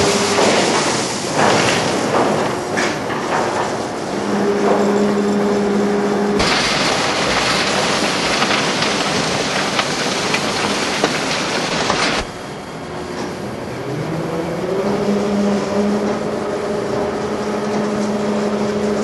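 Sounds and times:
rushing clatter: 0.0 - 5.3, 6.4 - 12.3
machinery motor drone: 4.2 - 19.0.

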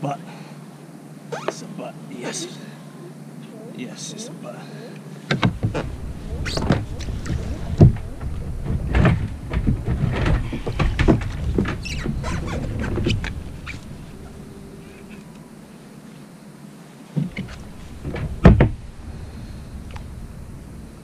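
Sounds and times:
low handling rumble: 5.5 - 15.8, 17.2 - 21.0.

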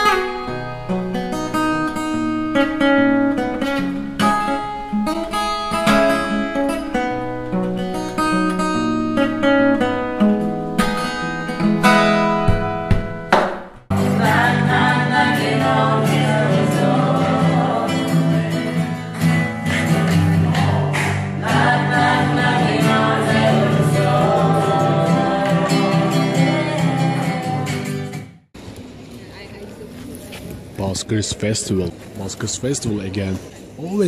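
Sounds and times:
acoustic guitar: 0.0 - 28.5
voices singing together: 13.9 - 19.0, 19.9 - 27.9.

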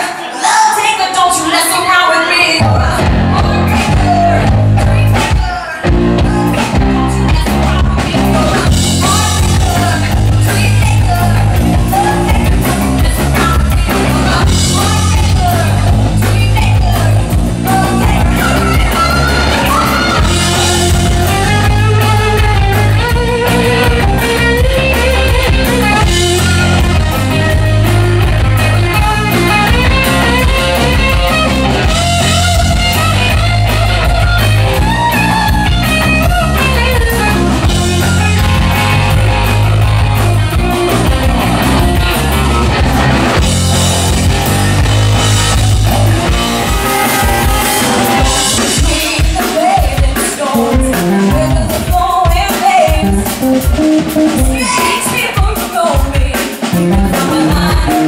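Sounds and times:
woman singing: 0.0 - 27.6, 48.3 - 53.4, 54.3 - 58.0
electric guitar: 2.5 - 58.0
bass guitar: 2.6 - 58.0
drum kit: 2.6 - 58.0.

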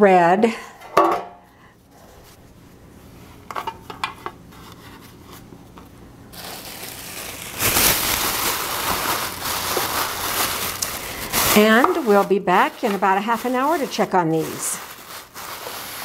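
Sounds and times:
plastic bag crinkling: 6.3 - 16.0.

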